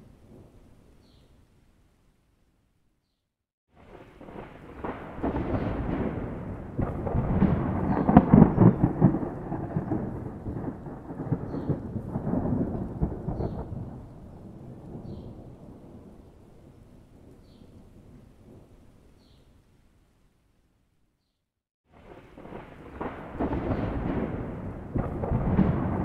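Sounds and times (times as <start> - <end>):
rolling thunder: 3.8 - 18.7, 21.9 - 26.0.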